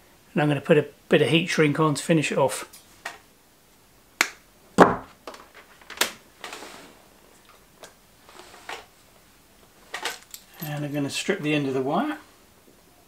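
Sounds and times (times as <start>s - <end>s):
dull thump: 4.8s - 5.1s.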